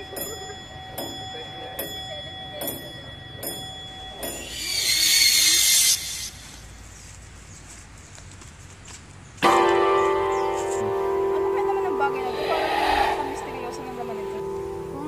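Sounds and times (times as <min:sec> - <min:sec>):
high ringing tone: 0:00.0 - 0:06.8
loud hissing whoosh: 0:12.2 - 0:14.4.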